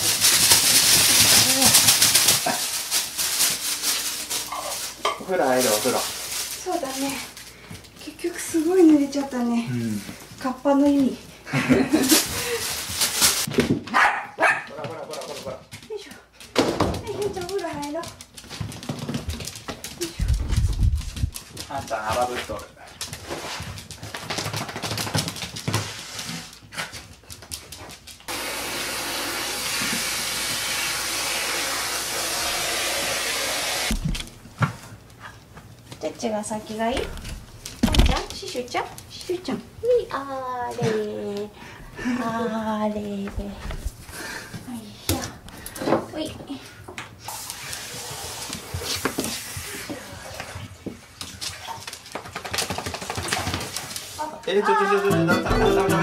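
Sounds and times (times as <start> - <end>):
dog claws on wooden floor: 14.7 - 28.3, 50.8 - 54.2
hair dryer blowing: 28.3 - 34.0.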